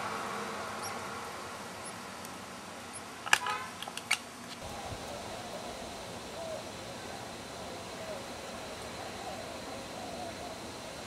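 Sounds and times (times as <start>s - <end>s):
steady low hiss: 0.0s - 11.0s
wren peeps: 4.6s - 11.0s.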